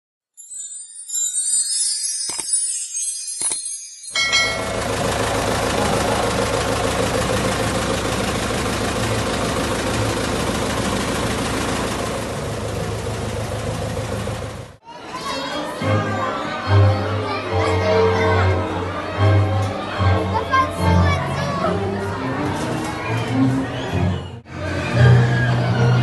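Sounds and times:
steam locomotive engine idling: 0:04.2 - 0:14.8.

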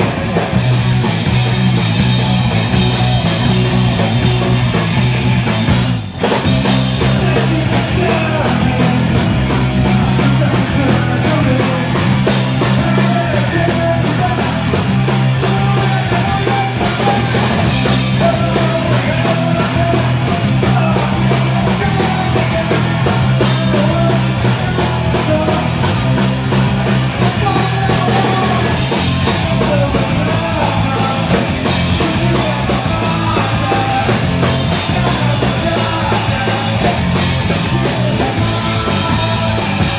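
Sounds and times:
punk rock band playing live: 0:00.0 - 0:39.9.

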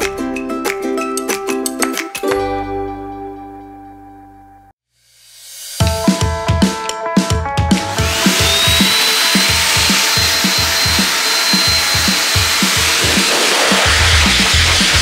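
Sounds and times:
background music with steady beat: 0:00.0 - 0:03.8, 0:05.4 - 0:15.0
grooming dryer motor whine: 0:07.9 - 0:15.0
rush of air: 0:12.2 - 0:15.0.

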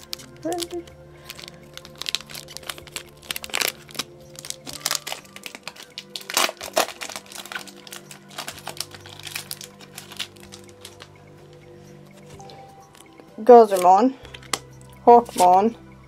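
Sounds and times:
foil wrapper crinkling: 0:00.0 - 0:11.1
quiet background music: 0:00.0 - 0:16.0.

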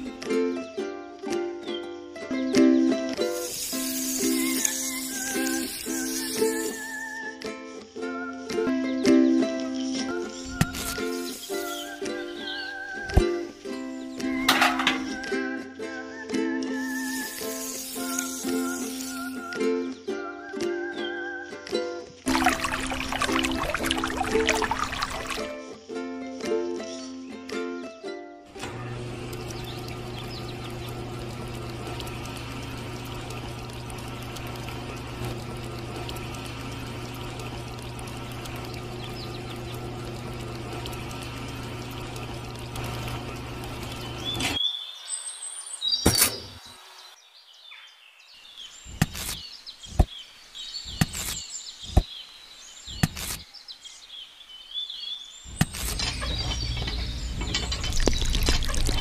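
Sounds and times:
birds chirping: 0:09.9 - 0:15.4, 0:29.3 - 0:32.1, 0:38.1 - 0:40.8, 0:43.8 - 0:59.0
wet cement pouring: 0:22.3 - 0:25.5, 0:55.6 - 0:59.0
small electric motor humming: 0:28.6 - 0:44.5.

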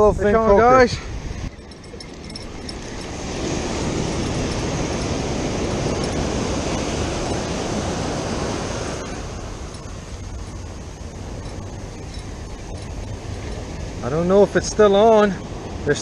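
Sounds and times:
ocean surf washing up beach: 0:02.8 - 0:16.0.

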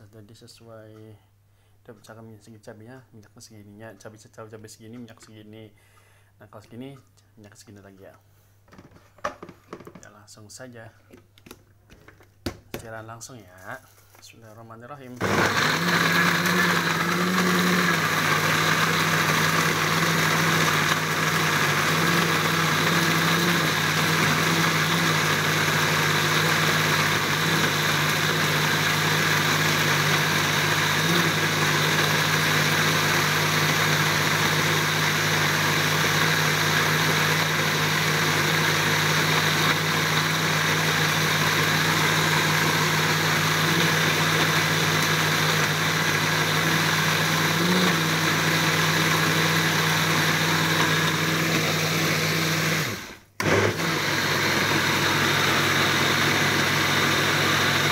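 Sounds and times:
blender running: 0:15.2 - 0:57.9.

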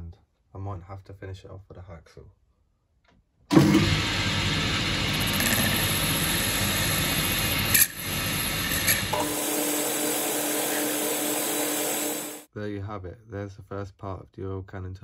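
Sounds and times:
lathe running: 0:03.5 - 0:12.5
parting tool cutting brass: 0:04.9 - 0:12.5.

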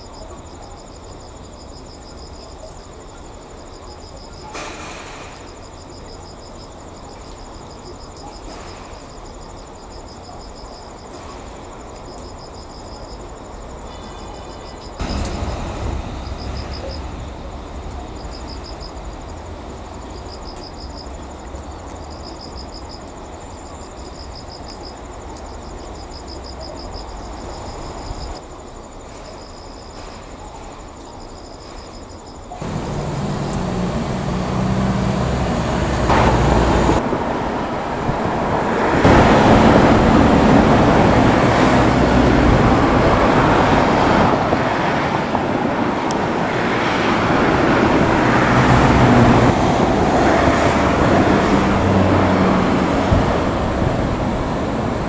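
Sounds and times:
electric locomotive hum and rumble: 0:13.2 - 0:28.4, 0:32.6 - 0:55.0.

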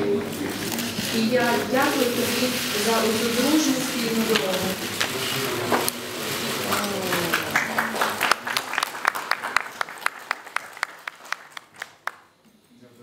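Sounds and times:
voices: 0:00.0 - 0:08.6
audience applauding: 0:03.6 - 0:12.3.

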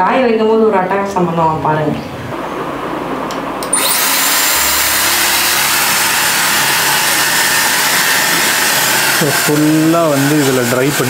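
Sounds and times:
hair dryer blowing: 0:03.6 - 0:11.0.

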